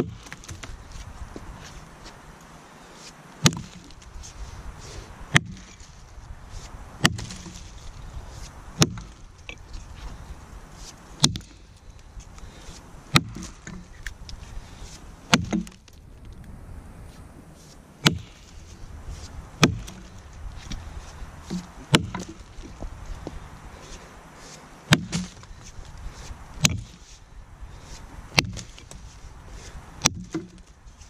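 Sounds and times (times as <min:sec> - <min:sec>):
axe chopping into log: 0:03.4 - 0:04.0, 0:05.3 - 0:05.9, 0:07.0 - 0:07.7, 0:08.8 - 0:09.2, 0:11.2 - 0:11.6, 0:13.1 - 0:13.9, 0:15.3 - 0:15.9, 0:18.0 - 0:18.4, 0:19.6 - 0:20.2, 0:21.4 - 0:23.3, 0:24.9 - 0:25.5, 0:26.6 - 0:27.0, 0:28.3 - 0:29.1, 0:30.0 - 0:30.7.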